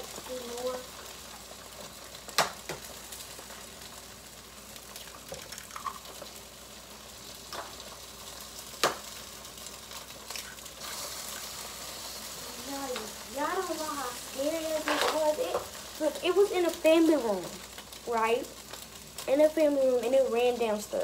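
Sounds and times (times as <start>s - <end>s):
eggs sizzling in a pan: 0.0s - 21.0s.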